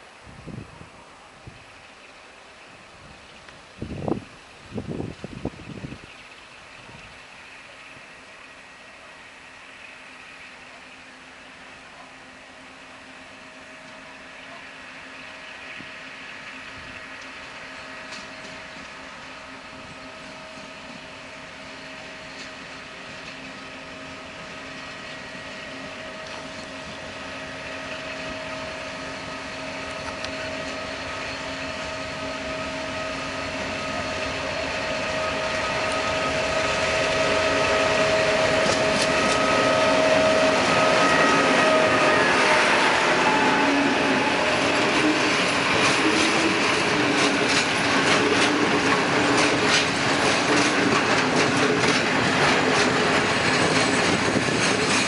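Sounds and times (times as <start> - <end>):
diesel locomotive engine drone: 0.0 - 55.0
wheels clicking on rails: 15.8 - 55.0
freight wagons rumbling: 22.0 - 55.0.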